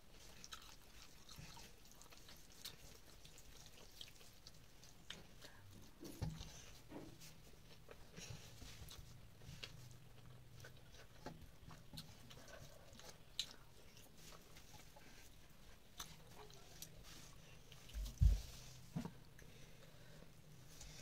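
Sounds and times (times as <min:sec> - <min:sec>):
faint low hum: 0:00.0 - 0:21.0
chewing and lip smacks: 0:00.1 - 0:06.8, 0:07.6 - 0:17.0.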